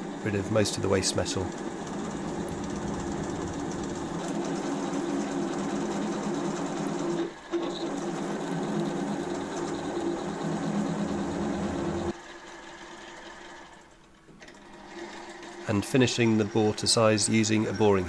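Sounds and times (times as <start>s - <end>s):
milling machine drilling metal: 16.2s - 18.0s.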